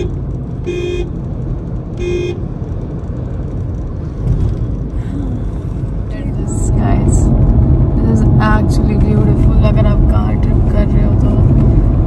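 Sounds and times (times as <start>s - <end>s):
car horn toots: 0.0s - 1.2s, 2.0s - 2.5s
tyres and engine rumble: 0.0s - 12.0s.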